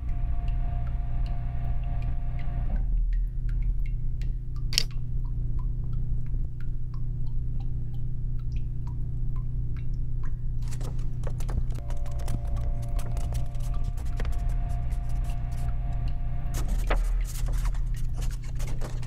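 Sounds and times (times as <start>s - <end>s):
low steady drone: 0.0s - 4.5s, 11.8s - 18.3s
small clicks and ticks: 2.0s - 19.0s.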